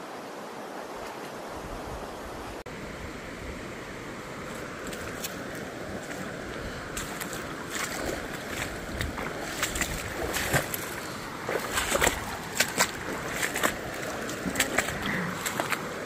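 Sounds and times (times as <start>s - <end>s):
stream rushing over rocks: 0.0s - 16.0s
splashes of wading: 4.2s - 16.0s.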